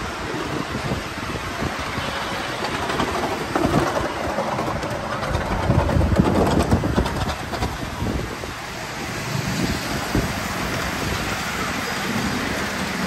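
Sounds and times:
miniature train wheels rumbling on rails: 0.0 - 13.0
train wheel clicks: 1.8 - 8.5.

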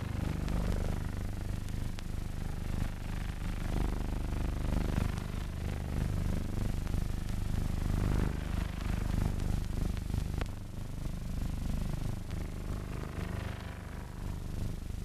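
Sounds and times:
low hum: 0.0 - 4.4
mechanical rumble and rattle: 0.0 - 10.8
faint crackling clicks: 0.1 - 2.2, 6.6 - 7.5, 9.0 - 10.6.

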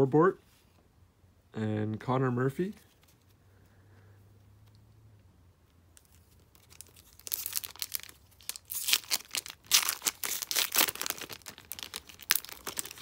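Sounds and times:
foil wrapper tearing and crinkling: 6.1 - 13.0.

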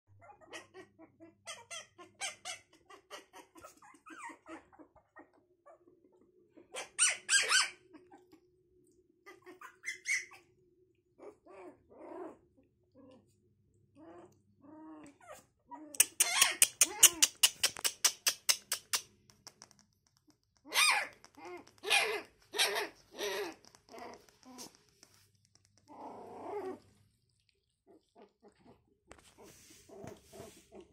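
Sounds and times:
puppies yipping and whimpering: 1.5 - 5.8, 6.6 - 8.4, 9.3 - 10.5, 15.2 - 17.9, 20.7 - 24.7.

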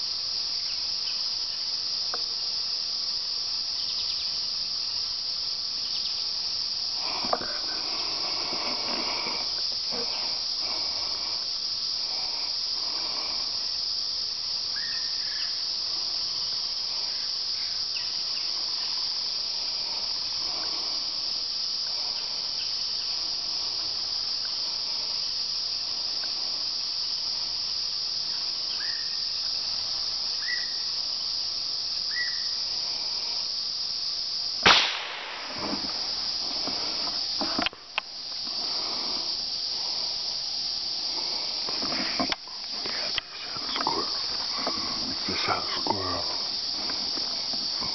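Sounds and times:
high-pitched insect chorus: 0.0 - 47.9
rifle shot: 34.6 - 35.6.

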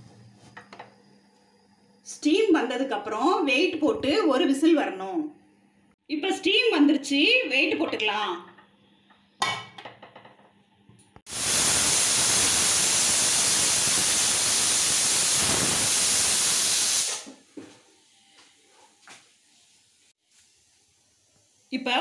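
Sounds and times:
pressure cooker steam whistle: 11.3 - 17.3.

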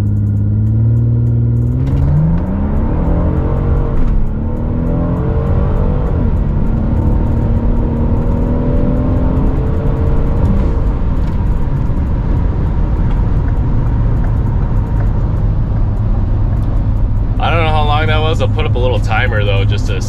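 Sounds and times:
car engine accelerating: 0.0 - 20.0.

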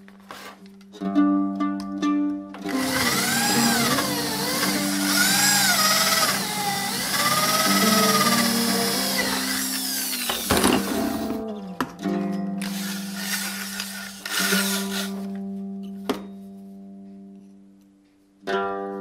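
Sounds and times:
electric drill boring through steel: 2.7 - 11.4, 12.6 - 15.3.

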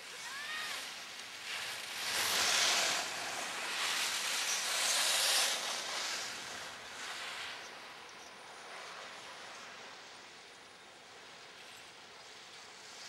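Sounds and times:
skis scraping over snow: 0.0 - 8.0.

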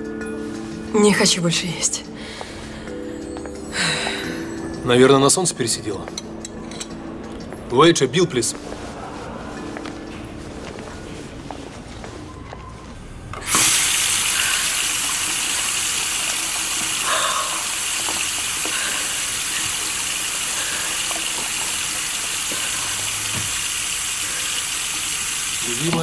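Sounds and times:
running water rushing: 13.4 - 26.0.

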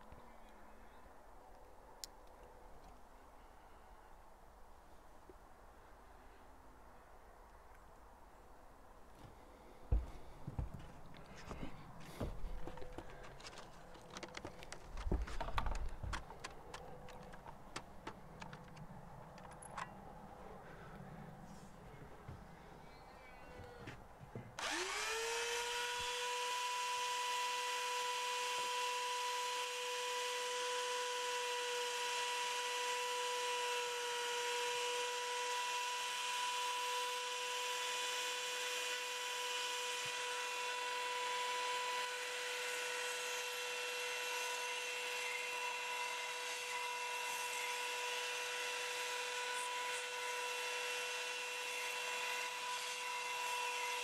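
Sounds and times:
belt sander whining: 23.4 - 54.0
blade grinding on sanding belt: 24.6 - 54.0.

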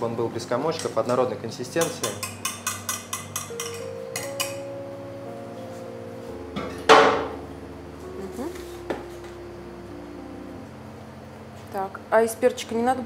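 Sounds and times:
soft background music: 0.0 - 13.0
whisk clinking against steel bowl: 1.8 - 4.6.

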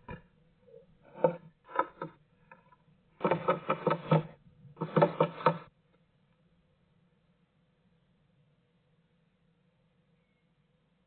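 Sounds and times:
bird tapping on wood: 3.2 - 5.7.

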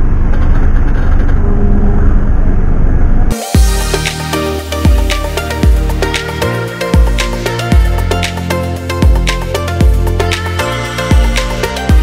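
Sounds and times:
deep bass hits dropping in pitch: 1.4 - 6.4
electronic background music: 3.2 - 12.0.

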